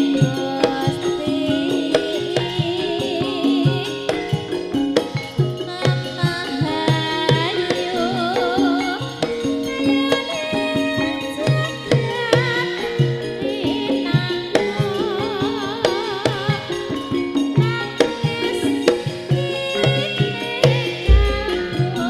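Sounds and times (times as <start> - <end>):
fast hand-drum strokes: 0.0 - 22.0
deep bass boom: 21.1 - 21.8
steady bass line: 21.1 - 21.8
vibrato melody: 21.1 - 22.0.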